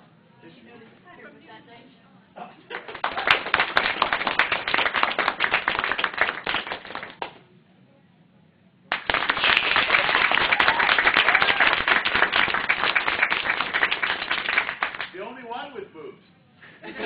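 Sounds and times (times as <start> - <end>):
audience clapping: 2.7 - 7.4, 8.9 - 15.2.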